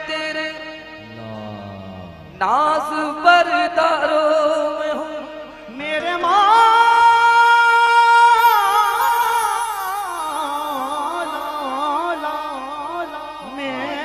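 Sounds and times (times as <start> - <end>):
person singing qawwali: 0.0 - 14.0
musical accompaniment: 8.4 - 14.0.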